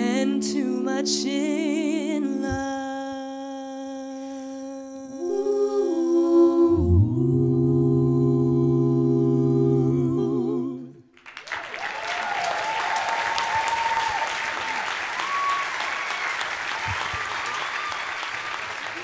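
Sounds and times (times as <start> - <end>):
a cappella vocal quartet: 0.0 - 11.2
audience applause: 11.2 - 19.0.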